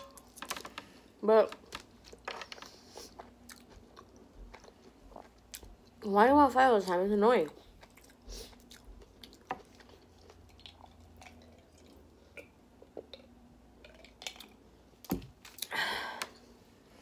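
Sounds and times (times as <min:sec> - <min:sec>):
chewing and mouth clicks: 0:02.9 - 0:06.0, 0:07.5 - 0:14.6.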